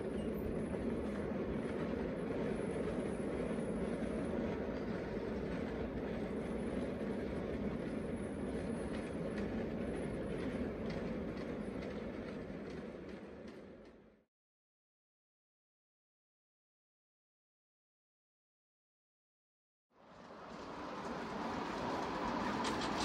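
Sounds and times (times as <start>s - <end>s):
miniature train running: 0.0s - 14.0s, 20.0s - 23.0s.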